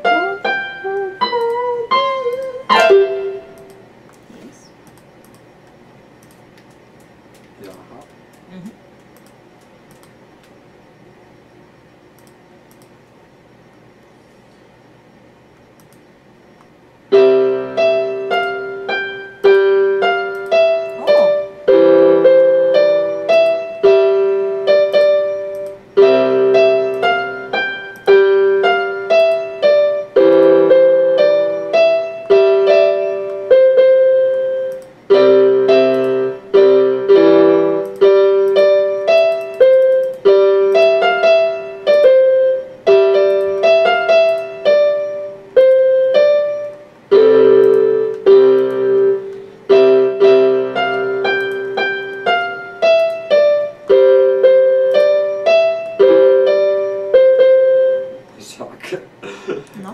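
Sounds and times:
electronic keyboard piano melody: 0:00.0 - 0:03.8, 0:17.1 - 0:58.3.

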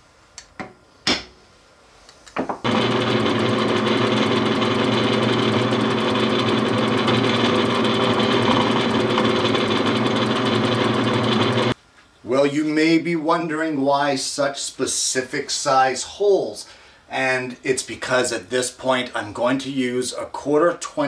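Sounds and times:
drill press boring into plastic: 0:02.6 - 0:11.8.

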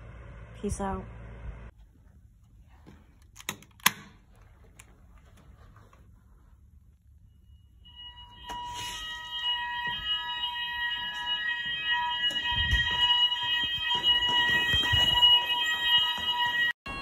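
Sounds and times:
fire alarm electronic tone: 0:07.2 - 0:17.0.

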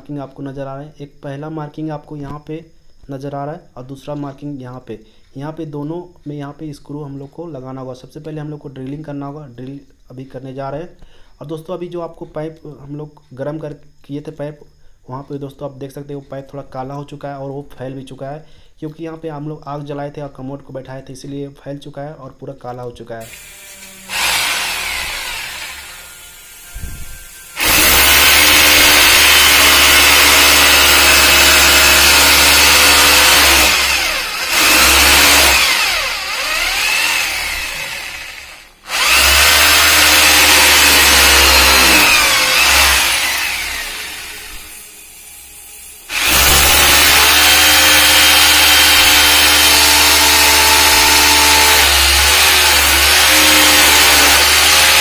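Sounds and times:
electric drill boring into tile: 0:23.2 - 0:55.0.

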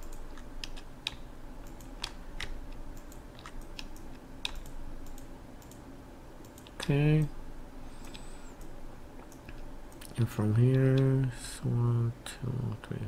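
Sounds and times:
mouse and keyboard clicking: 0:00.0 - 0:05.8.

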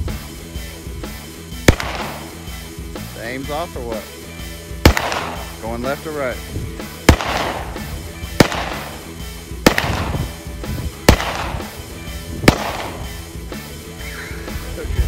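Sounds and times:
handgun shots with echo: 0:01.7 - 0:02.4, 0:04.8 - 0:05.6, 0:07.0 - 0:10.3, 0:11.0 - 0:11.8, 0:12.4 - 0:13.2.

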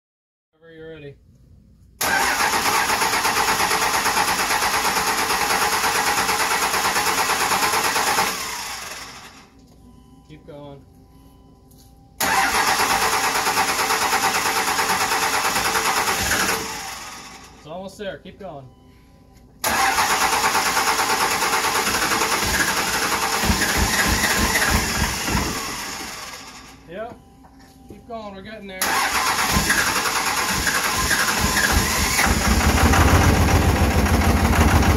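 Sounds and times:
diesel engine starter cranking: 0:02.0 - 0:09.5, 0:12.2 - 0:17.6, 0:19.6 - 0:26.9, 0:28.8 - 0:34.9.

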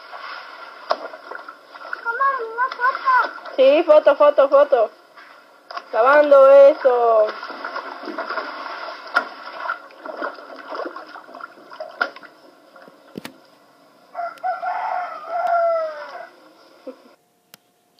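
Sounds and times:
water splashing in a basin: 0:00.0 - 0:04.1, 0:05.7 - 0:12.9
rooster crowing: 0:14.1 - 0:16.5.

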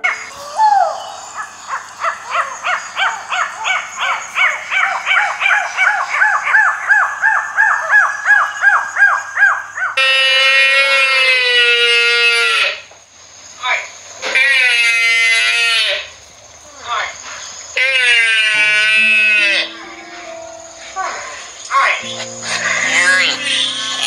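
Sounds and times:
long falling animal call: 0:00.0 - 0:08.1, 0:08.7 - 0:12.8, 0:17.8 - 0:21.2
lemurs yapping calls: 0:00.9 - 0:12.8.

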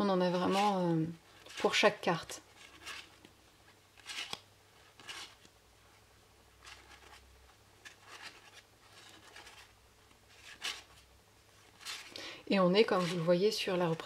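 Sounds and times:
cards sliding and swishing: 0:00.5 - 0:03.3, 0:04.0 - 0:05.5, 0:06.6 - 0:07.2, 0:07.8 - 0:12.2, 0:12.8 - 0:13.4.

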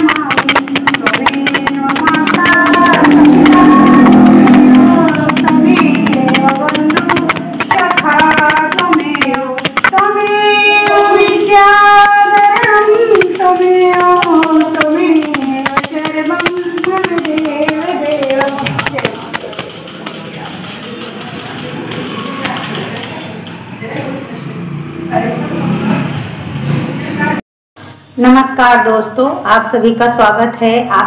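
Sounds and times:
backing music: 0:00.0 - 0:21.4
person chanting with held notes: 0:00.0 - 0:22.0
quick percussion: 0:00.0 - 0:24.2.

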